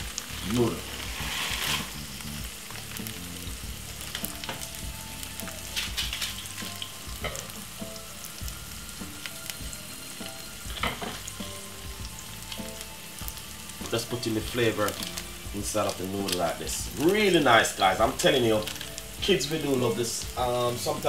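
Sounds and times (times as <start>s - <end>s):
sausages sizzling in a frying pan: 0.0s - 21.0s
brief loud hiss: 1.0s - 2.0s.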